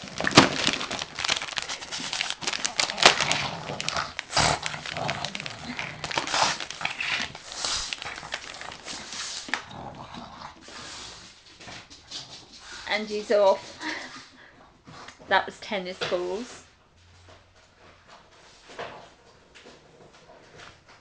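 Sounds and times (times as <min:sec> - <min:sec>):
paper tearing and crinkling: 0:00.0 - 0:09.7.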